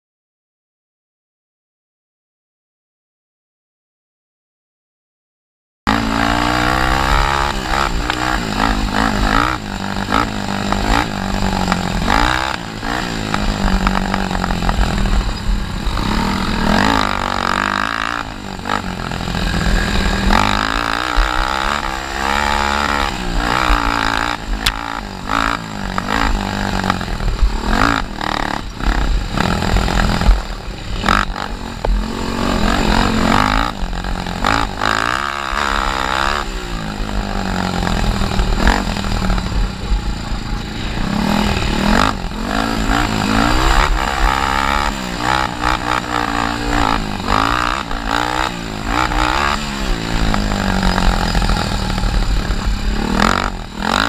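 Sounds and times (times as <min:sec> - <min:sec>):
quad engine revving: 0:05.9 - 0:54.0.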